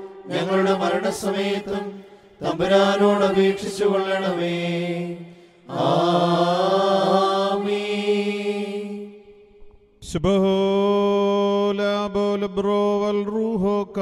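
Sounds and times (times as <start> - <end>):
voices singing liturgical chant: 0.0 - 9.5.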